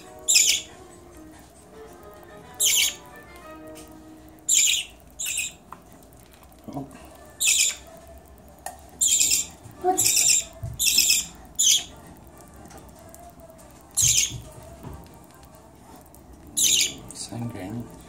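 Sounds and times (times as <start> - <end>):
baby bird begging squawks: 0.3 - 0.7, 2.6 - 3.0, 4.5 - 5.6, 7.4 - 7.8, 9.0 - 11.9, 14.0 - 14.4, 16.6 - 17.0.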